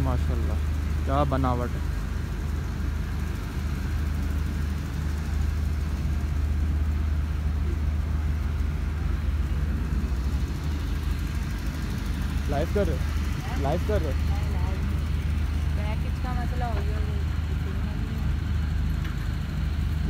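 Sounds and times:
low engine rumble: 0.0s - 20.0s.

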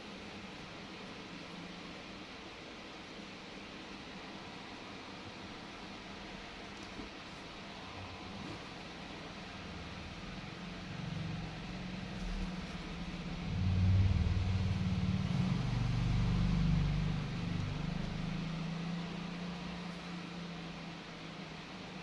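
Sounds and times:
vehicle engine running: 11.0s - 21.1s.

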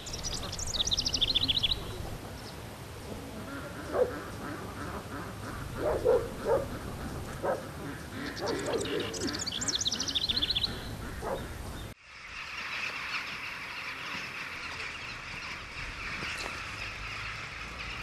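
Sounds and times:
waterfowl calls: 0.0s - 2.2s, 3.0s - 18.0s
small bird trilling: 8.3s - 11.5s.

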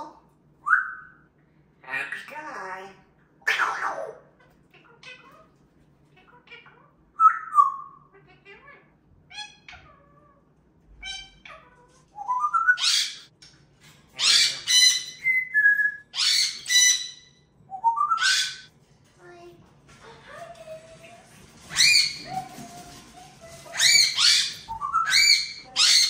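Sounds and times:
parrots whistling and chirping: 0.6s - 1.3s, 7.2s - 8.0s, 10.9s - 13.3s, 14.1s - 18.7s, 21.5s - 26.0s
parrot harsh screeches: 14.1s - 15.3s, 16.1s - 17.3s, 21.6s - 22.9s, 23.5s - 26.0s.

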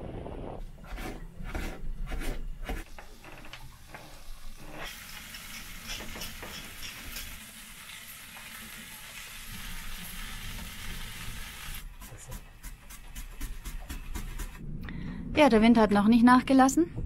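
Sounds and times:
frying sizzle with crackles: 3.9s - 12.2s.

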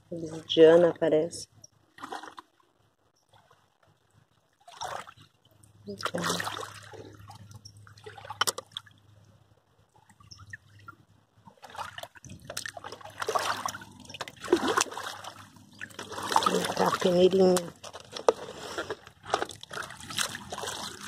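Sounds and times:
water trickling: 3.2s - 17.8s
feet splashing through water: 4.6s - 5.2s, 6.1s - 8.8s, 11.5s - 17.6s, 19.4s - 21.0s.

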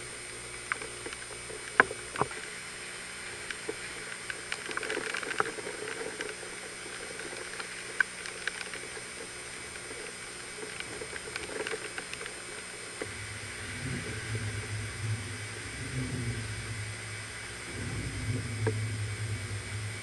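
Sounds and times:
small ticks: 0.0s - 2.6s, 3.2s - 20.0s
tyres hissing through water: 0.0s - 20.0s
low engine rumble: 5.5s - 20.0s.

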